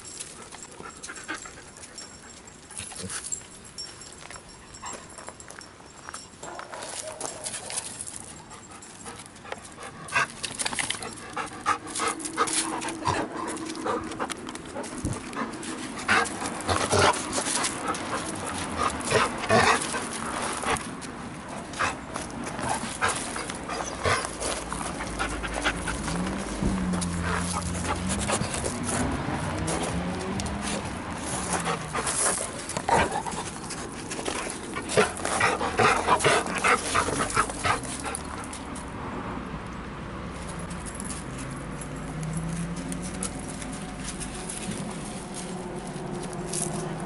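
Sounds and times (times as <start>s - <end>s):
dogs panting: 0.0s - 5.5s, 7.1s - 38.8s.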